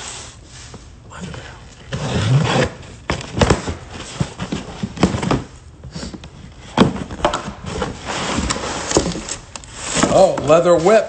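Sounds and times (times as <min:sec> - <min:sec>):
cardboard scraping and rustling: 0:01.9 - 0:11.0.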